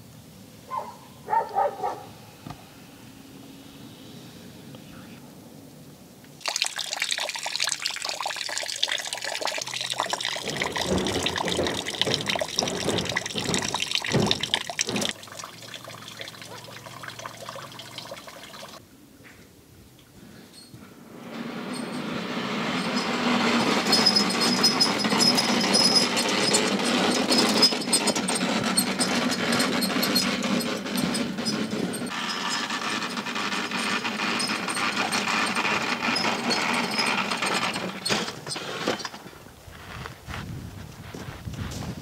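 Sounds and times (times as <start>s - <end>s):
snowblower engine running: 22.2s - 38.8s.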